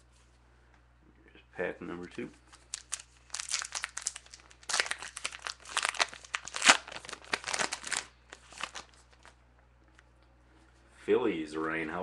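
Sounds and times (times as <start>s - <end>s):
plastic wrapper tearing and crinkling: 2.5s - 9.4s.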